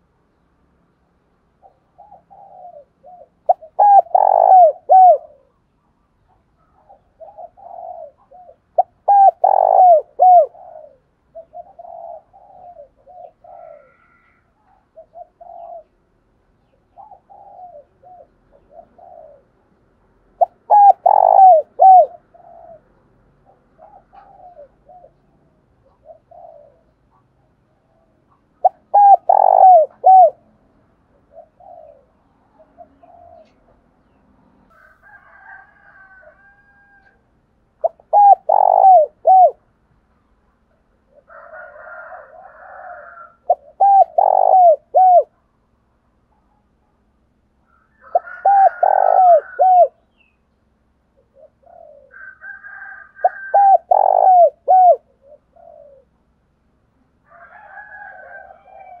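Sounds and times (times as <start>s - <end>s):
dove cooing: 1.4s - 34.1s, 37.8s - 39.7s, 40.6s - 45.5s, 47.7s - 50.4s, 51.0s - 56.4s, 57.3s - 59.0s
rough bird calls: 1.6s - 15.9s, 20.4s - 30.4s, 37.8s - 39.6s, 42.7s - 45.3s, 47.6s - 50.4s, 53.2s - 56.1s.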